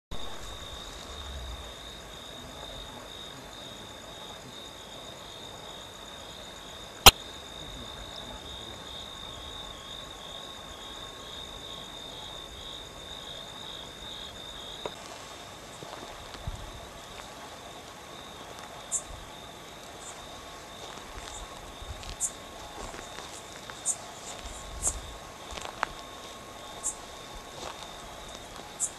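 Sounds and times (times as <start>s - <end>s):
frogs calling: 0.1s - 28.9s.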